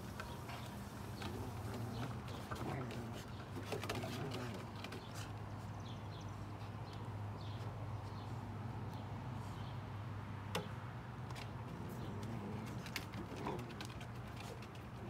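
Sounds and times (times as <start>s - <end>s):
dog claws tapping on wooden deck: 10.5s - 15.0s.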